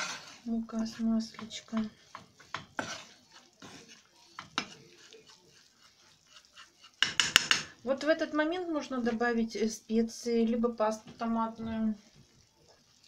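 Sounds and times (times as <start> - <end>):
metal spoon scraping frying pan: 0.0 - 7.8.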